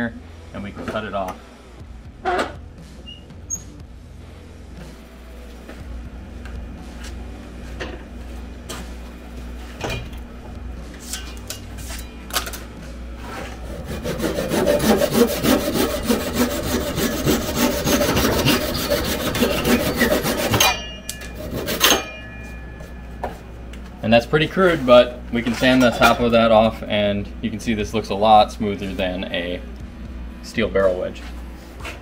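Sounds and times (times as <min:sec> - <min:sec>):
handsaw sawing: 0:13.4 - 0:22.1.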